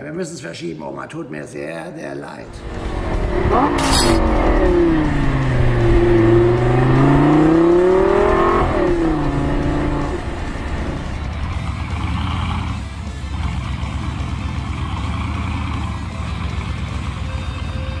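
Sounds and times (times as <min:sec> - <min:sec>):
car engine revving: 0:02.6 - 0:16.7
sharp click: 0:03.7 - 0:04.2.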